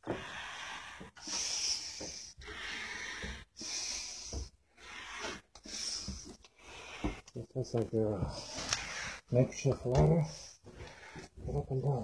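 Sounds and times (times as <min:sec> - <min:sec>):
person breathing hard: 0:00.0 - 0:07.3.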